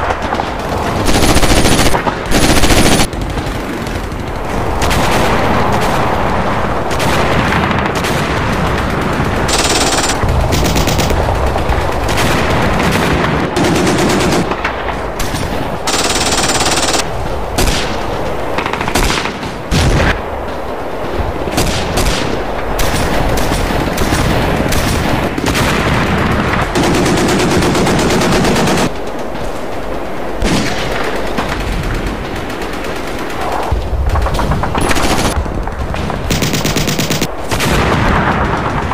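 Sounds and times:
automatic machine-gun fire: 0.0 - 14.6, 15.9 - 17.8, 22.9 - 28.9, 30.4 - 38.9
gunshots: 0.0 - 20.8, 21.4 - 29.0, 30.4 - 38.9.

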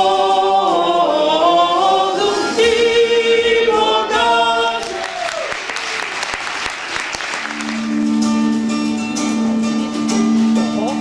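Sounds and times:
group singing unaccompanied: 0.0 - 5.2
audience applause: 4.8 - 8.1
steady instrument tone: 7.4 - 11.0.

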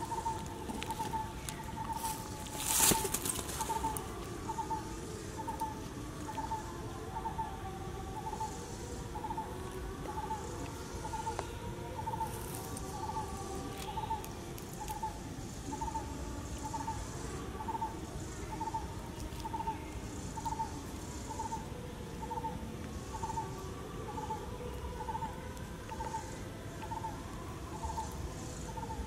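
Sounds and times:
bird hooting: 0.0 - 29.0
faint insect buzzing: 0.0 - 29.0.

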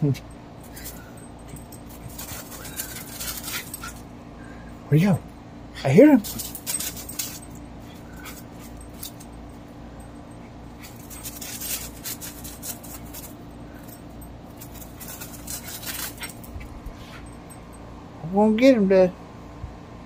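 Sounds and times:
steady low hum: 0.0 - 20.0
dog scratching in gravel: 1.8 - 4.1, 6.2 - 9.2, 10.8 - 13.5, 14.6 - 16.6.

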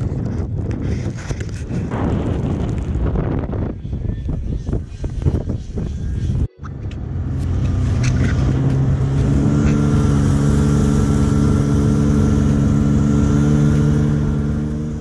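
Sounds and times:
snowmobile track noise: 0.0 - 15.0
wind: 0.0 - 15.0
snowmobile engine: 5.5 - 15.0.

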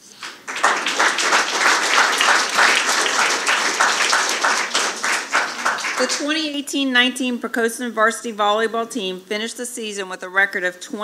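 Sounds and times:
audience applause: 0.2 - 6.3.

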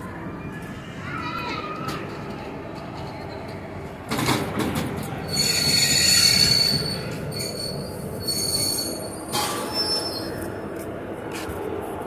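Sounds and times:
train wheels squealing on rails: 5.2 - 10.8.

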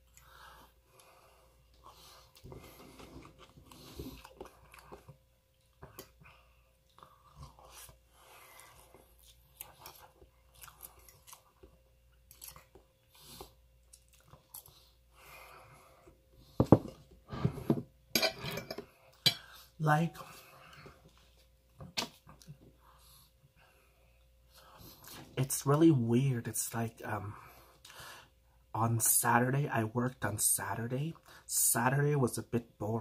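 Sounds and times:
close-up chewing: 1.0 - 15.1.

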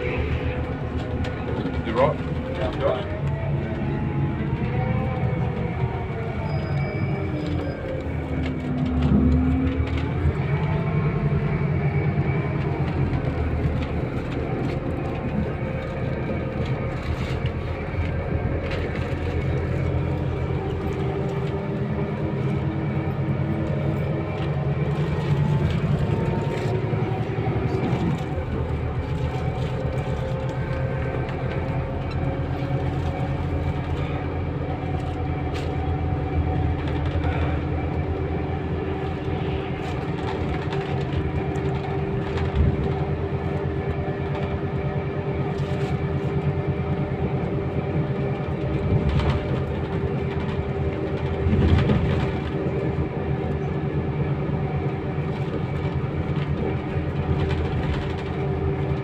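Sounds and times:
bus body rattles: 0.0 - 59.0
bus diesel engine accelerating: 0.0 - 59.0.

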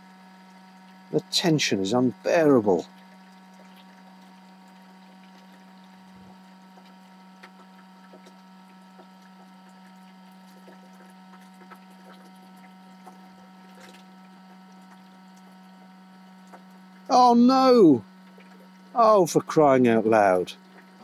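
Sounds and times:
faint electrical hum: 0.0 - 21.0
small ticks: 2.8 - 17.1.

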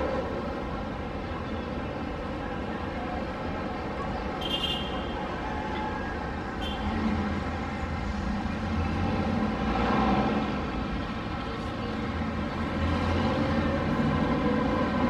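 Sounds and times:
distant road traffic rumble: 0.0 - 15.0
vehicle passing by: 6.9 - 11.0, 12.2 - 15.0.

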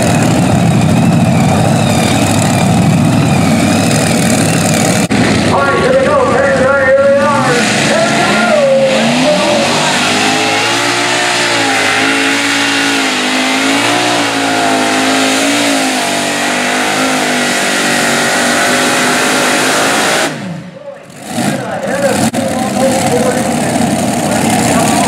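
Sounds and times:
tractor engines at full throttle: 0.0 - 25.0.

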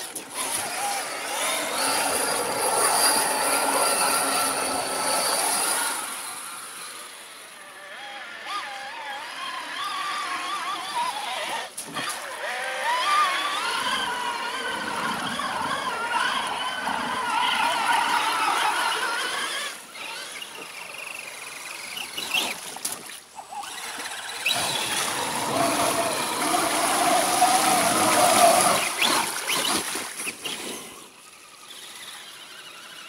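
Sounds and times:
electric motor whining: 0.1 - 33.0
water splashing: 10.5 - 32.7.

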